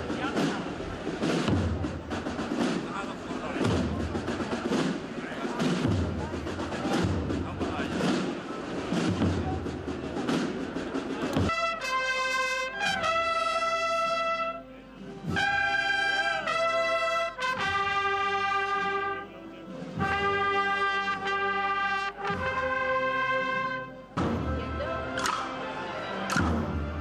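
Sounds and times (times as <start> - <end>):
trumpets playing long notes: 11.4 - 19.4, 20.0 - 25.2.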